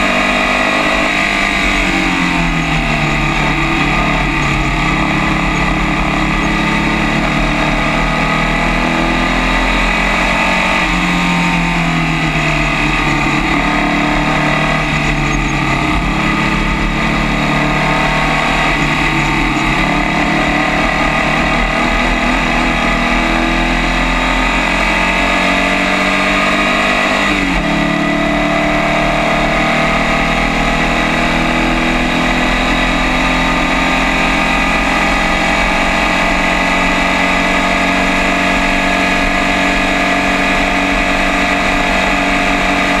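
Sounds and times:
race car engine at full throttle: 0:00.0 - 0:43.0.

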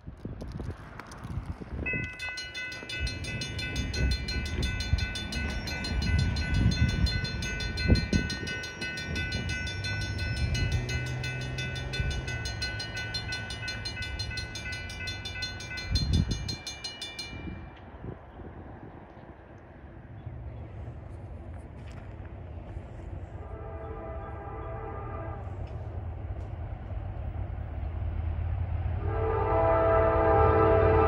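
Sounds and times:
wind on microphone: 0:00.0 - 0:19.5
distant train horn: 0:23.2 - 0:26.0, 0:29.0 - 0:31.0.

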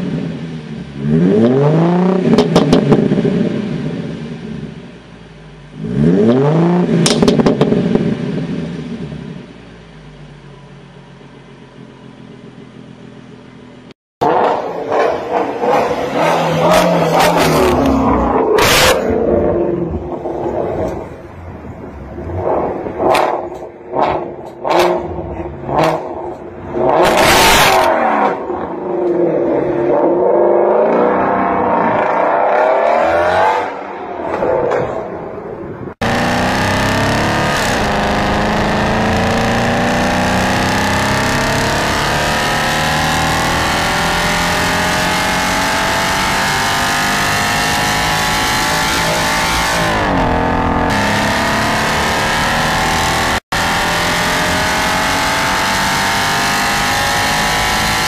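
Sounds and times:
car engine revving: 0:00.0 - 0:09.5, 0:14.2 - 0:35.2, 0:35.9 - 0:58.0
car engine accelerating hard: 0:14.2 - 0:21.4, 0:35.9 - 0:58.0.

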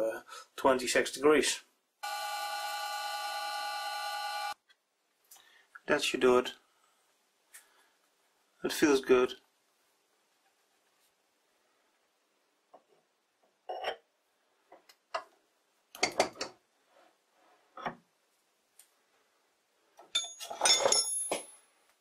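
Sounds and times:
ringing metal clink: 0:20.1 - 0:21.6.

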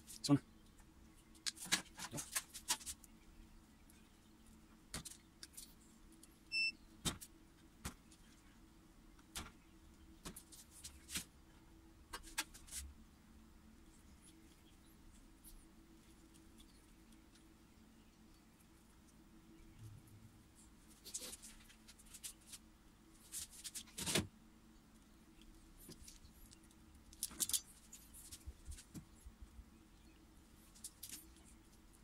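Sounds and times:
faint steady hum: 0:00.0 - 0:32.0
short high beep: 0:06.5 - 0:06.8.

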